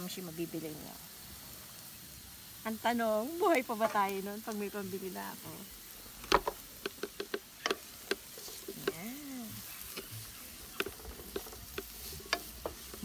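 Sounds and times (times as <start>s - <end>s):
faint oil sizzle: 0.0s - 13.0s
wooden spoon scraping wok: 3.0s - 13.0s.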